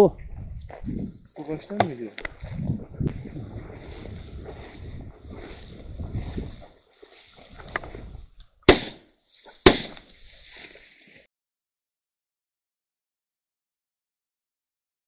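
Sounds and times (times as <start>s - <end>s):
low rumbling field noise: 0.0s - 11.0s
shotgun shots: 8.7s - 9.0s, 9.6s - 10.0s.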